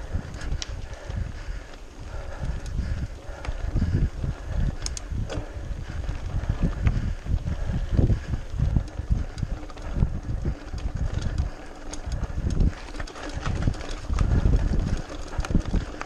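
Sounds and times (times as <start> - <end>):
bike rattling over cobblestones: 0.0 - 16.0.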